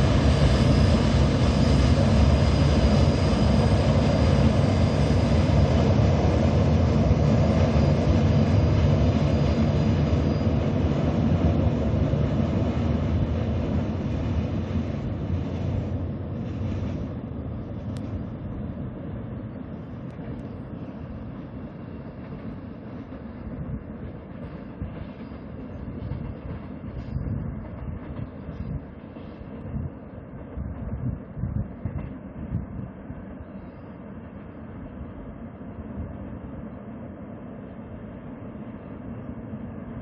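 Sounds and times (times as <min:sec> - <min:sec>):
freight train rumbling over viaduct: 0:00.0 - 0:40.0.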